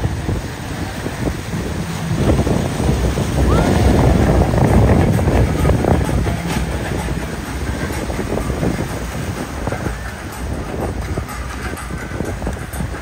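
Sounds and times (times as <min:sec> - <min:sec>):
boat hull pounding waves: 0:00.0 - 0:13.0
outboard motors rumbling: 0:00.0 - 0:13.0.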